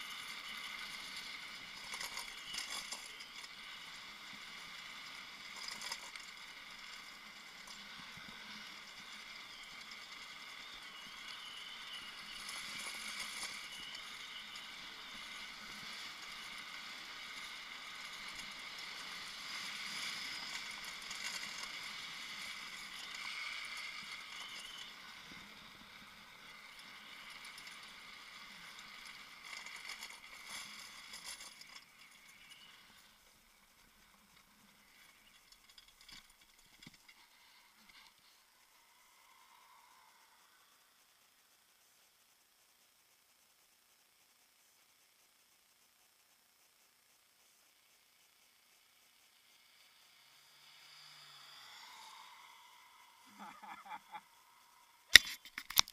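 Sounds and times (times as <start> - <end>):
plastic wheels hissing on tarmac: 0.0 - 42.6, 43.2 - 55.4.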